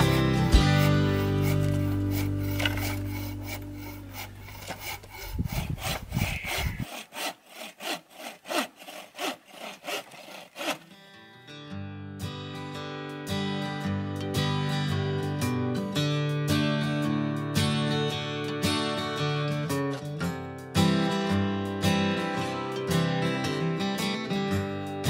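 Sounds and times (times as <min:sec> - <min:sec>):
acoustic guitar music: 0:00.0 - 0:04.6, 0:10.9 - 0:25.0
hand saw cutting branch: 0:00.0 - 0:11.3.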